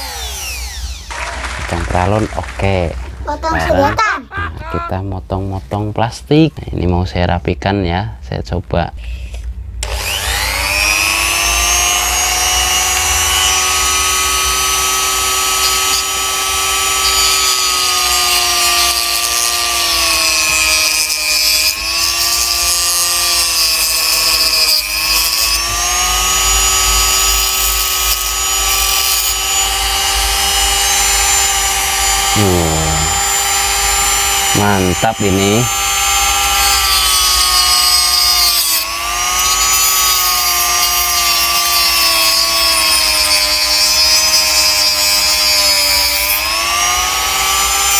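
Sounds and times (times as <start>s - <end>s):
die grinder grinding plastic: 9.8s - 47.9s.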